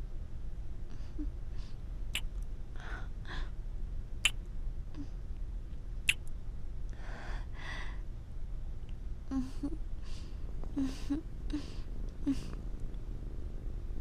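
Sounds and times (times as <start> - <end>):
soft breaths: 0.8 - 1.9, 2.7 - 3.6, 6.9 - 8.2, 9.3 - 12.7
person imitating cat purring: 9.3 - 9.8, 10.8 - 12.6.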